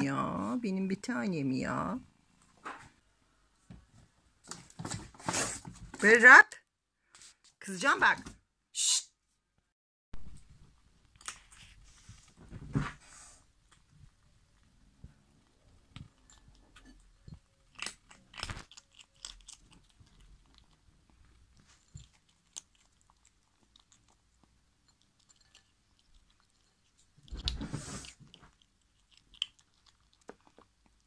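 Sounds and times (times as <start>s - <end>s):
kitten crunching dry kibble: 13.6s - 31.0s.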